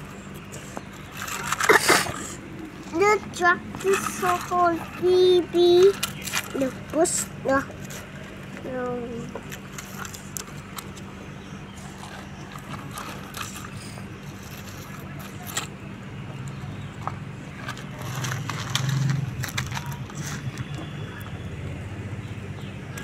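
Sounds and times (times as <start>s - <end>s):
steady low hum: 0.0s - 23.0s
toy bucket scraping gravel: 0.6s - 8.2s, 9.1s - 10.6s, 11.8s - 15.7s, 17.7s - 20.8s
pebbles clicking: 17.1s - 21.4s.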